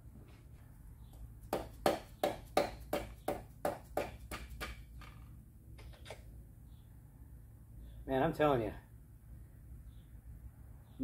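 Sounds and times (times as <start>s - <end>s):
tool tapping on engine parts: 1.5s - 6.1s.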